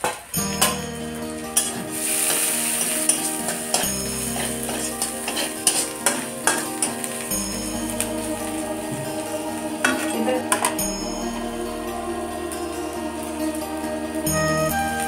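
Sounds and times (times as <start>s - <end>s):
background music: 0.0s - 15.0s
food sizzling: 0.0s - 15.0s
metal spatula scraping pan: 1.6s - 7.4s
spatula clinking against pan: 2.8s - 7.2s.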